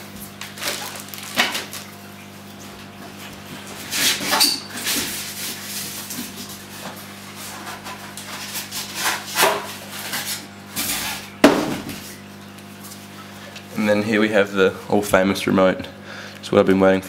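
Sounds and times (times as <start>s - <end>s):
steady low hum: 0.0s - 17.0s
packaging rustling: 0.3s - 2.1s.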